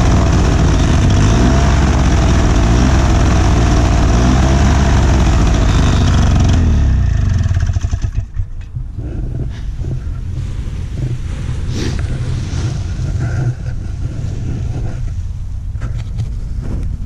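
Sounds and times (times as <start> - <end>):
paramotor engine idling: 0.0 - 9.0
wind buffeting microphone: 7.3 - 17.0.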